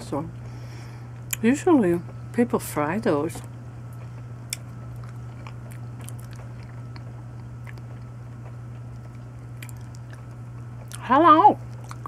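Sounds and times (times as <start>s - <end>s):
steady low hum: 0.0s - 12.0s
person chewing: 3.9s - 11.0s, 11.7s - 12.0s.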